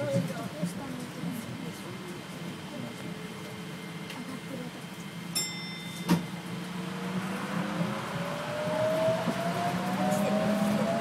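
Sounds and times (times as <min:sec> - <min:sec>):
high ringing tone: 0:05.4 - 0:06.4
motor whine rising in pitch: 0:06.6 - 0:11.0.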